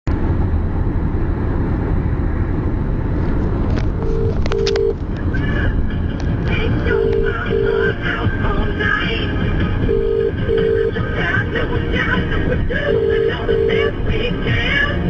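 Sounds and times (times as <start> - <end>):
low rumble inside a car: 0.1 - 15.0
telephone ringing tone: 4.0 - 5.0, 6.7 - 8.0, 9.8 - 11.0, 12.9 - 14.0.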